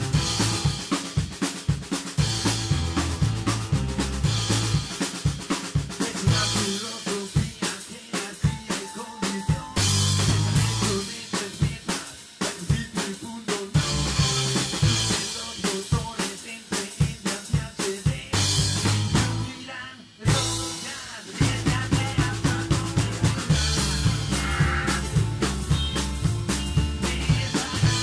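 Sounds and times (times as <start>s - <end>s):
bass line: 0.0s - 1.4s, 2.2s - 7.0s, 8.5s - 11.9s, 13.7s - 15.7s, 18.3s - 19.6s, 20.3s - 28.0s
drum kit hits and rimshots: 0.0s - 28.0s
rockabilly band music: 0.0s - 28.0s.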